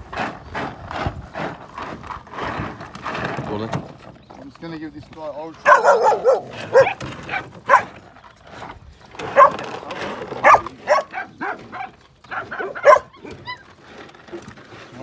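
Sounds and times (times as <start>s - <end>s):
dogs barking and yelping: 5.6s - 8.2s, 9.2s - 13.8s.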